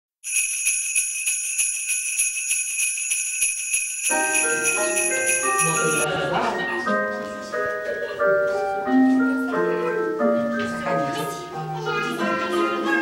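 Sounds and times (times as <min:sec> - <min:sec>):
sleigh bells jingling: 0:00.2 - 0:06.1
chime-like melody: 0:00.3 - 0:08.5.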